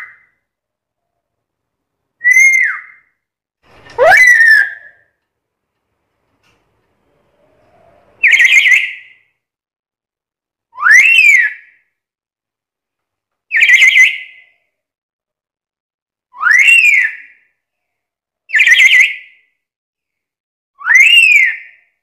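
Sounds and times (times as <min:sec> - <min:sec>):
parrot rising and falling whistle: 0:02.2 - 0:03.1, 0:03.8 - 0:05.1, 0:07.4 - 0:09.3, 0:10.8 - 0:11.7, 0:13.5 - 0:14.4, 0:16.4 - 0:17.3, 0:20.8 - 0:21.8.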